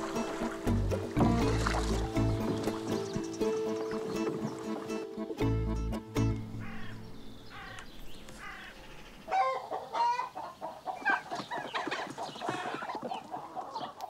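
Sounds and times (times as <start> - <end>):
chickens and turkeys clucking: 9.3 - 14.0.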